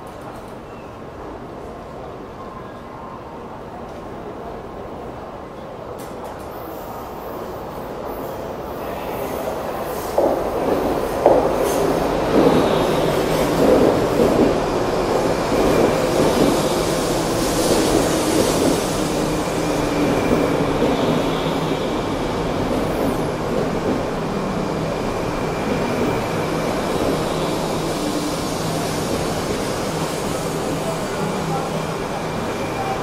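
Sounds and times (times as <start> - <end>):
train rolling past rumbling: 8.1 - 33.0.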